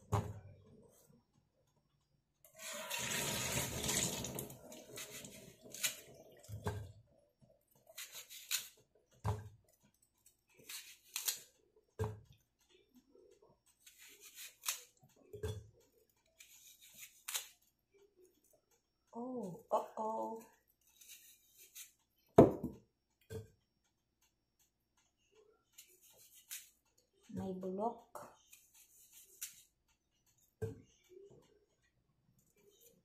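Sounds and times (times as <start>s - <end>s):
knife cutting apple: 4.8s - 6.9s, 7.7s - 12.4s, 13.2s - 17.7s, 20.7s - 23.5s, 25.8s - 27.4s, 28.4s - 29.9s.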